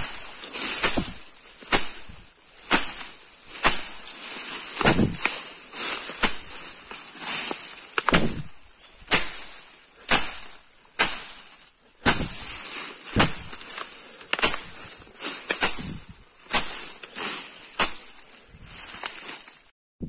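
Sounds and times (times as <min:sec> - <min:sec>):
footsteps swishing through grass: 0:00.0 - 0:19.7.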